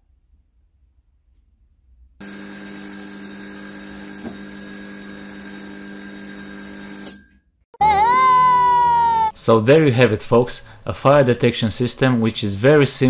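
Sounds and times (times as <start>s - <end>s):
fire alarm ringing: 2.2s - 7.4s.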